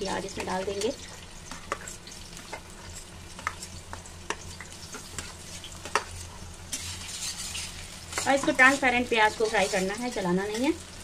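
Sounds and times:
onion sizzling in hot oil: 0.0 - 11.0
knife scraping steel plate: 6.7 - 8.3.

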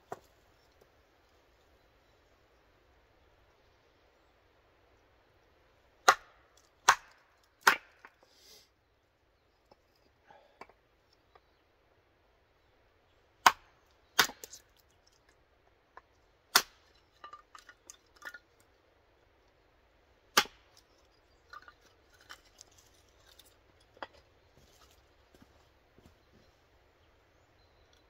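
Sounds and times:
hatchet cracking through wood: 6.0 - 8.2, 13.4 - 15.2, 16.5 - 18.4, 20.3 - 23.4.

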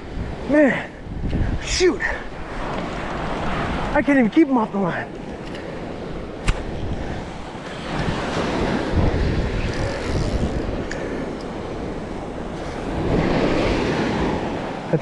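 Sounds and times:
wind buffeting microphone: 0.0 - 15.0
surf breaking on beach: 5.6 - 15.0
sharp click: 6.4 - 6.7.

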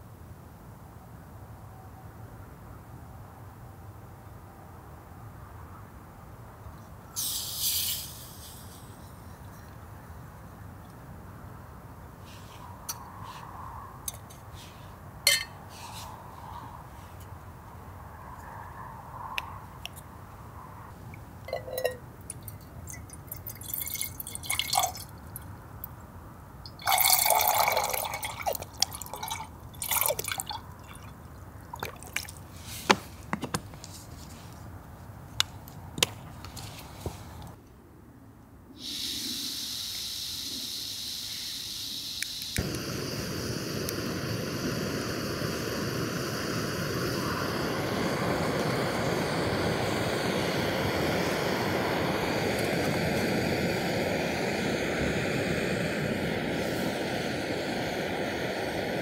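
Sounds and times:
steady rushing hiss: 7.1 - 21.8, 38.7 - 59.0
cookware clinking and tapping: 15.3 - 15.6, 21.5 - 22.0
water pouring: 21.6 - 25.2, 26.7 - 32.4.

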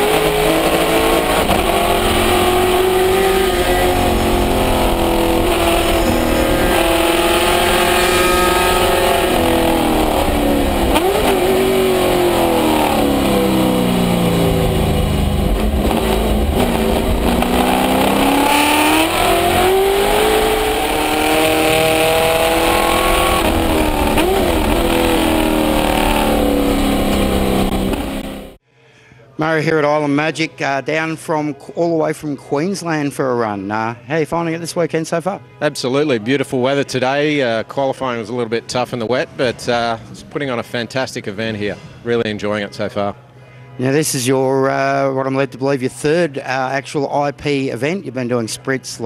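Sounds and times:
race car engine revving: 0.0 - 28.6.

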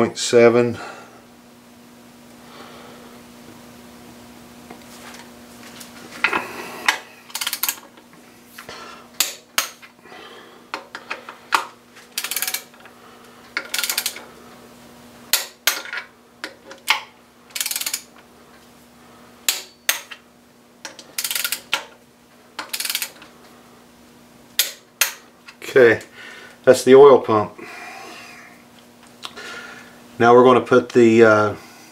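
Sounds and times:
torque wrench ratcheting: 7.3 - 7.9, 12.1 - 12.8, 13.6 - 14.2, 17.5 - 18.1, 21.1 - 21.8, 22.6 - 23.2.

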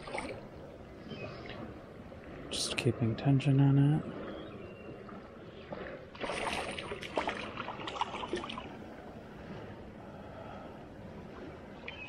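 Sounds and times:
water splashing and clicking: 0.0 - 0.5, 5.0 - 8.8
river water lapping on rocks: 0.0 - 0.6, 5.1 - 8.8.

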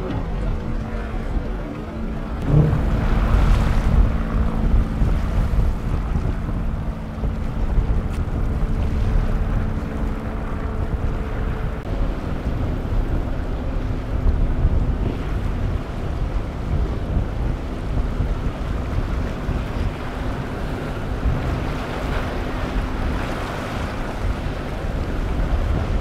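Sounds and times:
outboard motors running: 0.0 - 26.0
wind noise on microphone: 0.0 - 26.0
hull slamming through wave: 2.3 - 6.2.

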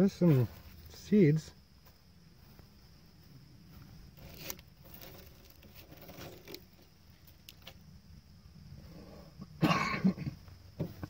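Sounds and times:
leaves rustling on plastic: 4.2 - 7.8.

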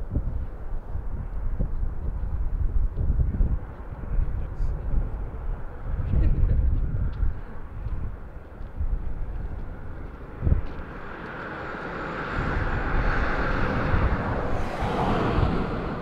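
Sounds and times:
wind buffeting microphone: 0.0 - 16.0
passing vehicle rushing: 9.1 - 16.0.

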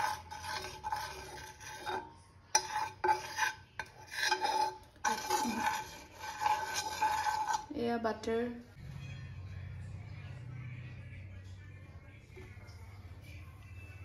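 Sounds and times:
spoon scraping a frying pan: 0.0 - 7.8.

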